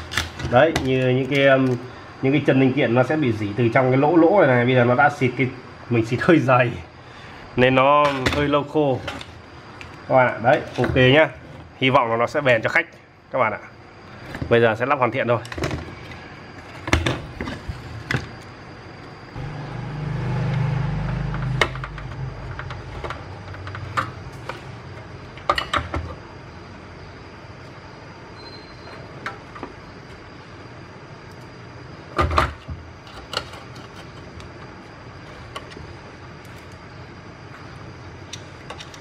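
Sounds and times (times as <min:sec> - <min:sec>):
low rumble: 0:19.3 - 0:23.6.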